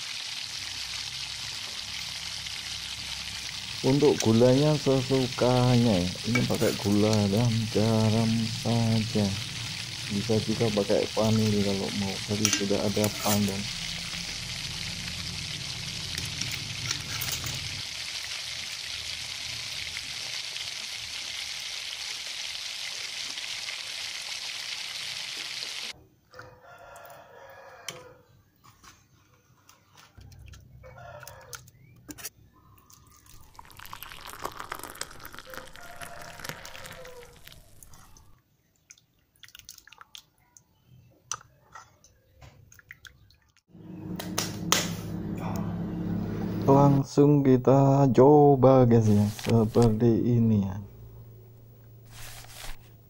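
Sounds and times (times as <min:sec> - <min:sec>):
rooster crowing: 0:26.3 - 0:28.3, 0:30.8 - 0:31.6, 0:35.3 - 0:38.1, 0:44.0 - 0:47.3.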